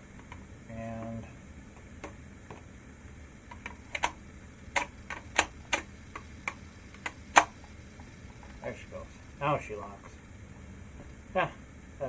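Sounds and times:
battery latch locking: 0:03.5 - 0:04.2, 0:04.8 - 0:06.3
hard plastic clicks: 0:03.5 - 0:04.2, 0:04.8 - 0:07.5.

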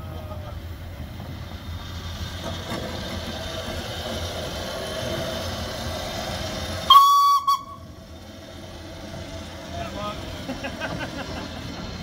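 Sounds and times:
steam locomotive rumble and hiss: 0:00.0 - 0:12.0
steam whistle blast: 0:06.9 - 0:07.8.

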